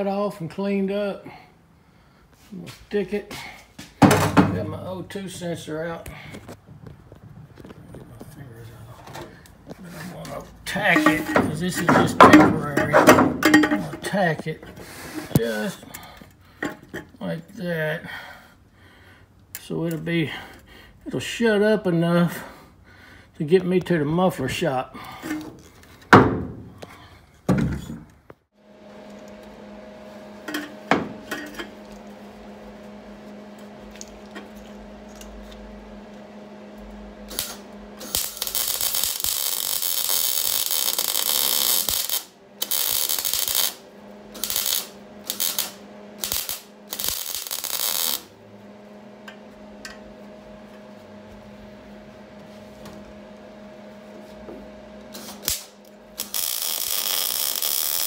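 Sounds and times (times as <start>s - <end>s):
low hum: 1.2s - 18.8s, 28.6s - 58.0s
welding crackling sizzle: 28.9s - 48.4s, 55.1s - 58.0s.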